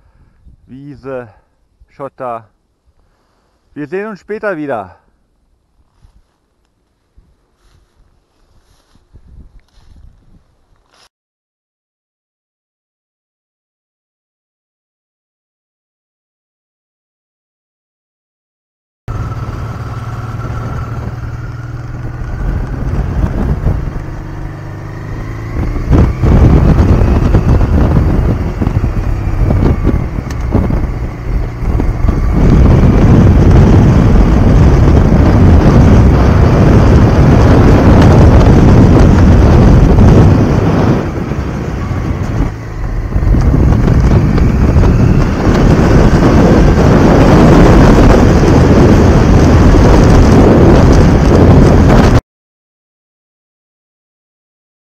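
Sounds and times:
wind on microphone: 0.0s - 0.7s, 7.0s - 11.0s, 19.1s - 52.2s
motorcycle engine accelerating: 7.6s - 9.0s, 19.1s - 52.2s.

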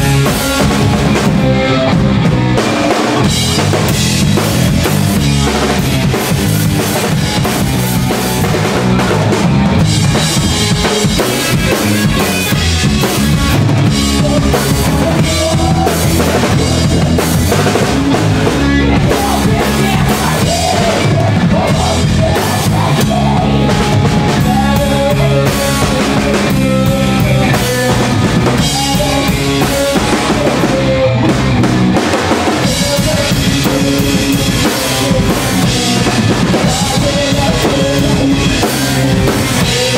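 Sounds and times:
bass guitar: 0.0s - 39.9s
drum kit: 0.0s - 39.9s
electric guitar: 0.0s - 39.9s
person singing into microphone: 13.6s - 31.6s, 32.4s - 39.9s.

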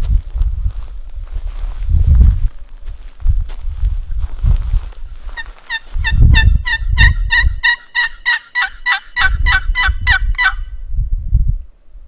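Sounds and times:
turkey yelping: 5.4s - 10.7s.

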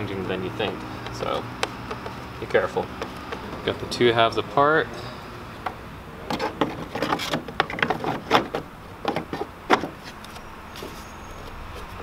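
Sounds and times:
plastic housing clicking and knocking: 0.6s - 3.6s, 5.6s - 9.9s.

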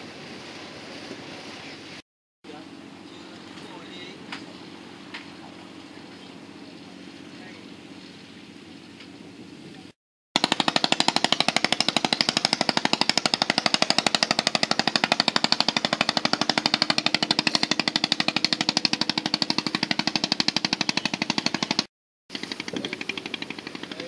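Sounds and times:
boat engine chugging: 0.1s - 9.7s, 10.4s - 24.0s.

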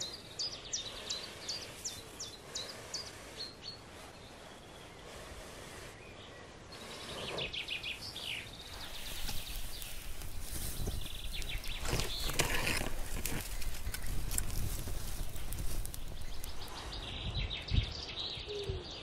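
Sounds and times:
fire crackling and popping: 8.8s - 16.9s.

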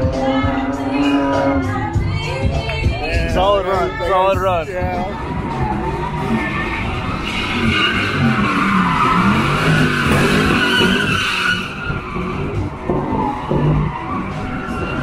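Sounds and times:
car engine revving: 0.0s - 15.0s
tyres squealing on asphalt: 0.0s - 15.0s.

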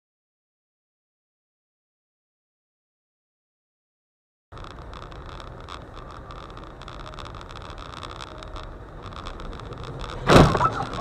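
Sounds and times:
car road and engine noise: 4.5s - 11.0s
loud collision crash: 10.2s - 11.0s.

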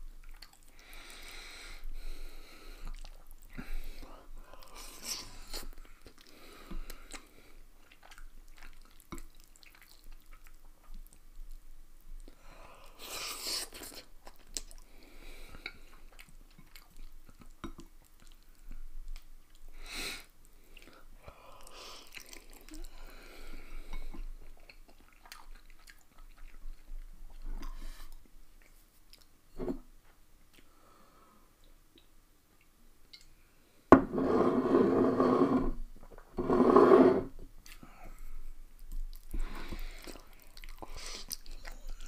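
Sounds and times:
wet mouth sounds: 6.9s - 11.2s, 24.0s - 29.3s, 38.8s - 42.0s.

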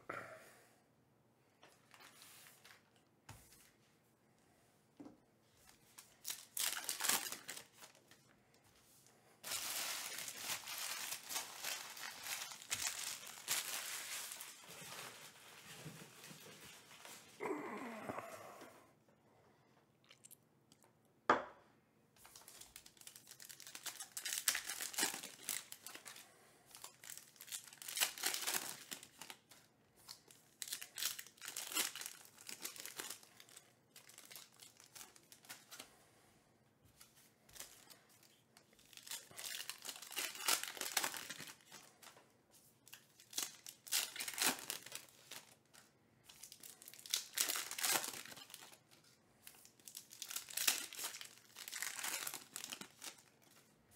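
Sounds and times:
plastic wrappers tearing and crinkling: 5.6s - 8.2s, 9.4s - 17.6s, 22.2s - 35.9s, 37.6s - 42.2s, 42.8s - 53.7s.

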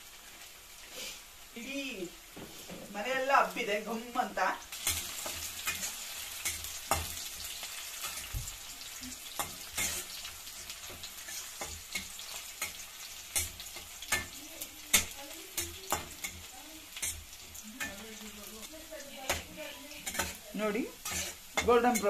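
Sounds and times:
onions sizzling in oil: 0.0s - 22.0s
spatula scraping a pan: 4.7s - 22.0s.

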